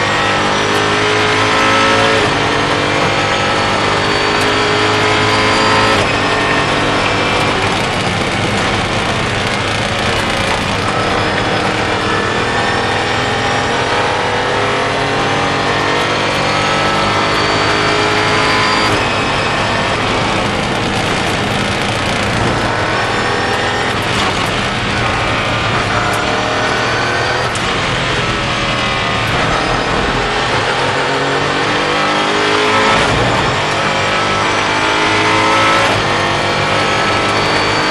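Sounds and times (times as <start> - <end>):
race car engine accelerating: 0.0 - 37.9.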